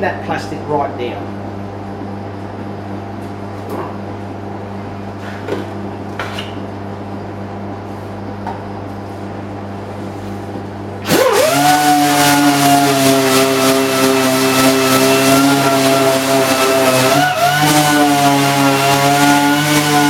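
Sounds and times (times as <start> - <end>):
steady low hum: 0.0 - 11.4
rotary sander whine: 11.0 - 20.0.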